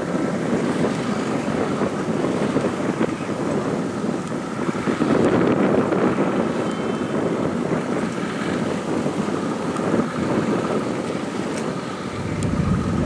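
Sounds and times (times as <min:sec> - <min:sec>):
wind noise on microphone: 0:00.0 - 0:13.0
ferry engines rumbling: 0:06.6 - 0:13.0.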